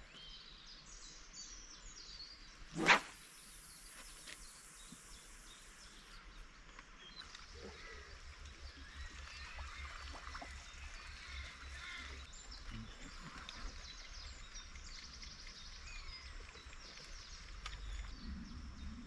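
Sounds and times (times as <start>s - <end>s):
small birds chirping: 0.0s - 19.0s
sharp swish: 2.7s - 3.3s.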